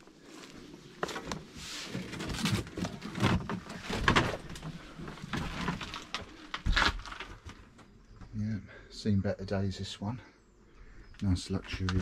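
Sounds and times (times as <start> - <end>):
knocks and rustling: 1.0 - 7.8.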